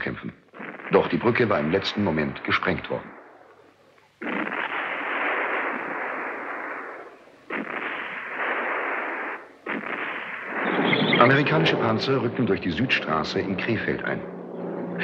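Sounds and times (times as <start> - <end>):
narration: 0.0 - 8.6, 9.4 - 15.0
explosions with rumble: 4.2 - 13.0.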